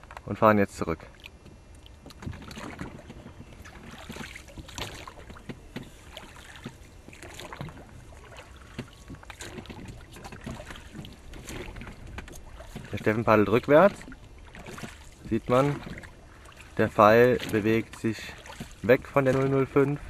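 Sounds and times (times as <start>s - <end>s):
water washing against hull: 0.7s - 20.0s
oar strokes splashing: 1.0s - 20.0s.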